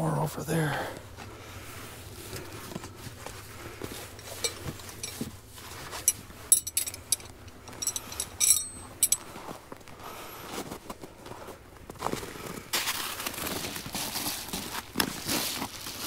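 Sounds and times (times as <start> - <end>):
metal tent stakes clinking: 4.2 - 9.4.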